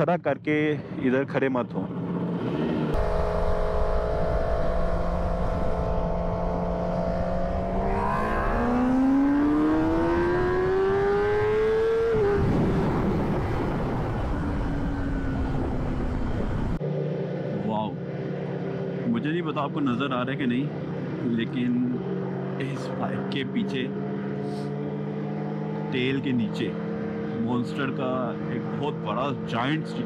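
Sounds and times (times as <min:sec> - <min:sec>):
motorcycle engine revving: 0:01.9 - 0:30.0
wind rush: 0:03.0 - 0:16.8.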